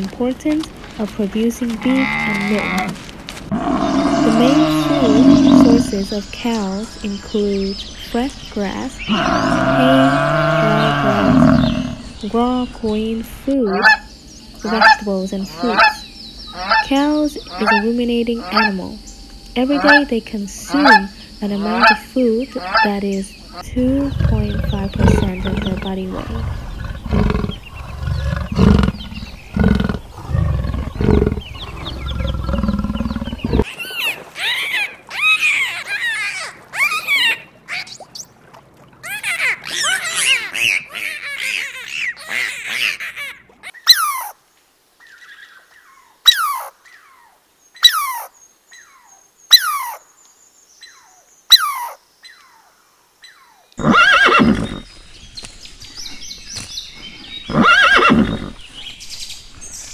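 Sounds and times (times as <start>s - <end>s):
deep growling animal call: 1.8s - 6.2s, 7.8s - 12.3s, 22.6s - 33.8s
dolphin whistles and squeals: 33.6s - 38.2s, 39.0s - 44.4s, 46.3s - 46.7s, 47.8s - 48.3s, 49.5s - 50.0s, 51.5s - 52.0s
horse whinnying: 53.8s - 54.9s, 57.5s - 58.6s.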